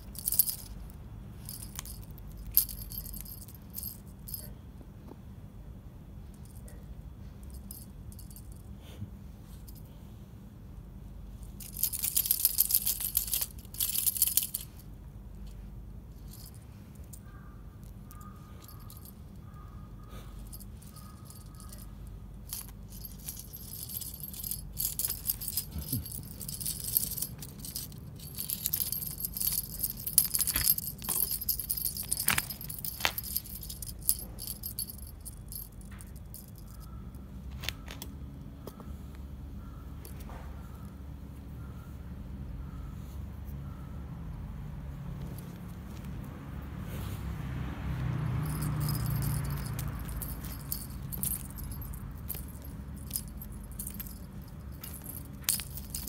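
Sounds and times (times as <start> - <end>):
wand toy jingling and rattling: 0.0 - 4.5, 7.4 - 8.6, 11.5 - 14.9, 16.2 - 17.2, 17.8 - 19.6, 20.4 - 37.0, 48.3 - 56.0.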